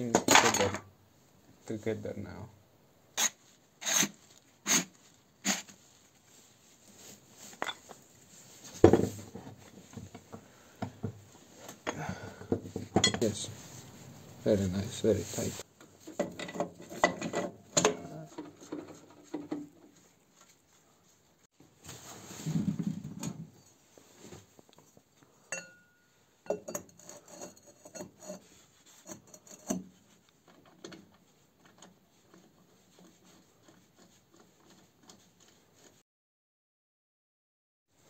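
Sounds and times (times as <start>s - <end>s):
rustling scrape: 3.2s - 10.1s, 13.2s - 16.1s, 18.1s - 25.0s, 26.9s - 36.0s.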